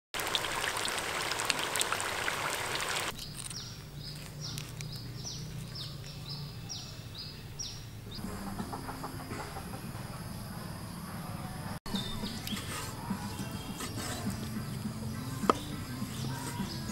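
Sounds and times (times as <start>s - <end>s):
food deep-frying in oil: 0.2s - 3.2s.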